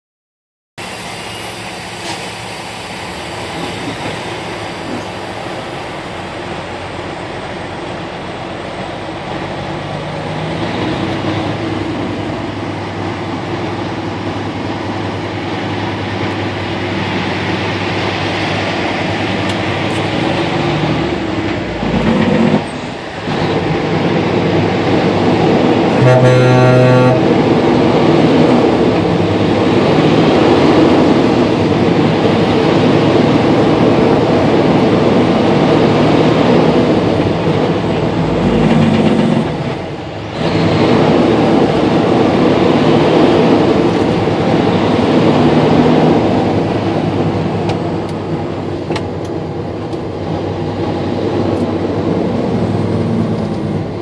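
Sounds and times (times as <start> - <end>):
turbocharger whistling: 0.8 - 6.9
truck diesel engine pulling: 0.8 - 54.0.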